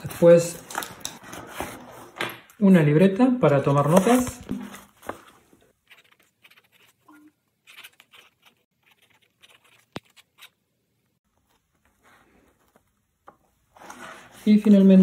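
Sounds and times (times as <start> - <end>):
pen nib scratching paper: 5.8 - 10.5.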